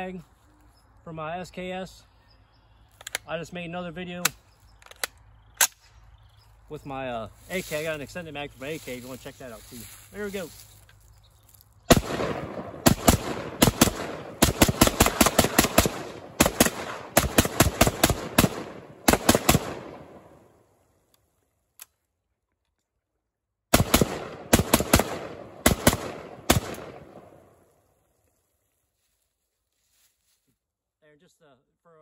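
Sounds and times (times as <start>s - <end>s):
rifle firing rapid shots: 11.9s - 20.3s, 23.7s - 27.4s.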